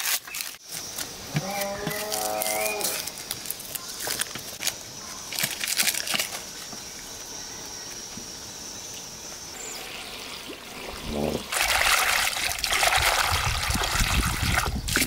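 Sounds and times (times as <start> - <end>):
onion skin crackling: 0.0 - 6.6.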